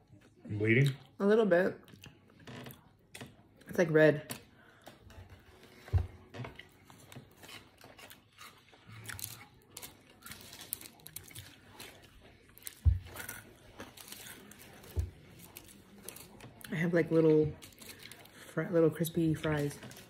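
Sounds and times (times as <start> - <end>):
person chewing sandwich: 1.8 - 3.6, 4.7 - 16.7.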